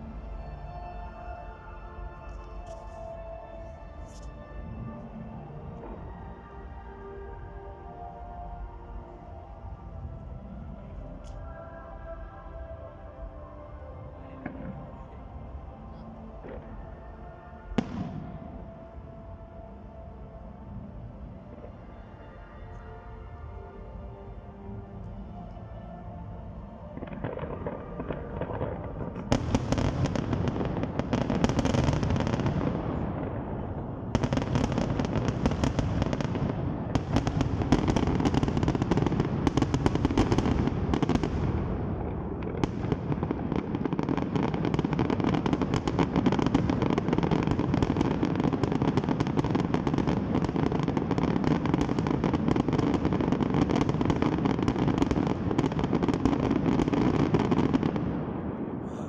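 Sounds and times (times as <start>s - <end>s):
fireworks bangs and crackling: 17.6s - 18.9s, 26.9s - 59.0s.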